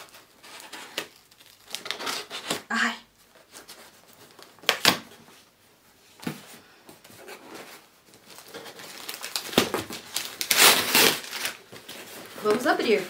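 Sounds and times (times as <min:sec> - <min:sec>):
package rustling: 0:00.0 - 0:02.6, 0:07.2 - 0:13.0.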